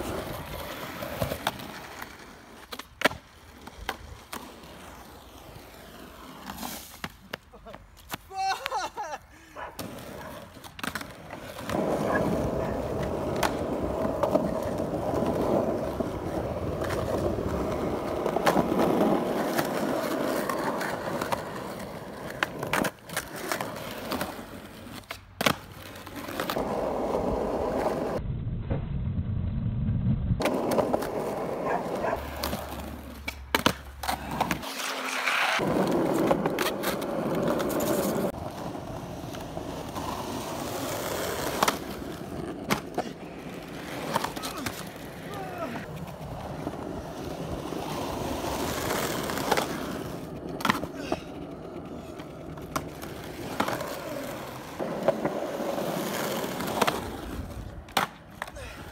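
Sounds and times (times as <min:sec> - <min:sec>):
skateboard wheels rolling on concrete: 0:00.0 - 0:58.9
skateboard clacking on concrete: 0:09.8 - 0:28.2, 0:30.4 - 0:58.9.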